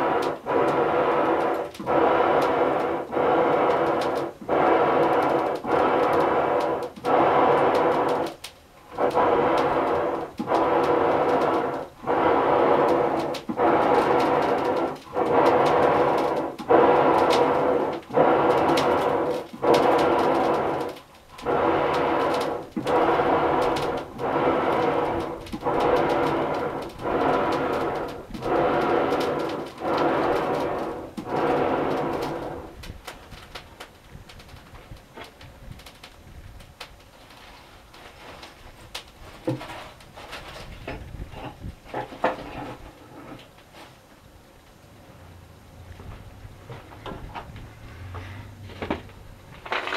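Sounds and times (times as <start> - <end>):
bellows pumping air: 8.9 - 32.9.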